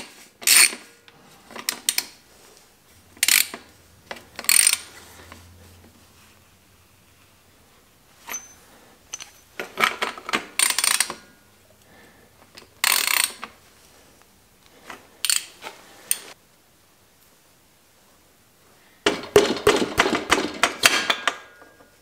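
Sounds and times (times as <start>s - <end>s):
socket ratchet clicking: 4.4s - 4.9s, 10.5s - 11.2s, 12.8s - 13.5s, 15.2s - 15.5s
metal tools clinking: 8.2s - 11.3s.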